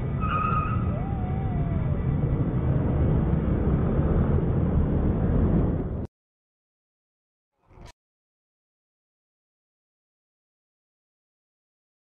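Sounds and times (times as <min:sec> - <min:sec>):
scooter and traffic road noise: 0:00.0 - 0:06.1.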